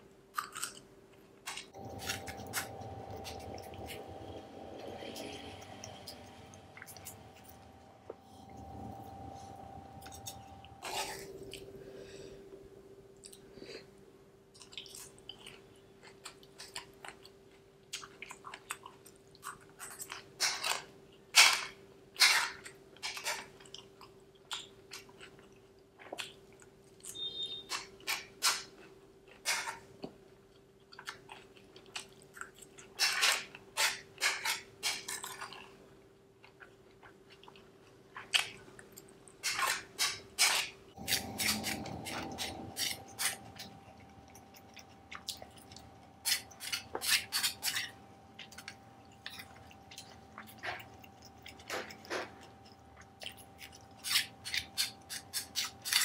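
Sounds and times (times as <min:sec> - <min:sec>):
faint steady hum: 0:00.0 - 0:56.0
wet crunchy chewing: 0:00.3 - 0:07.8, 0:22.4 - 0:56.0.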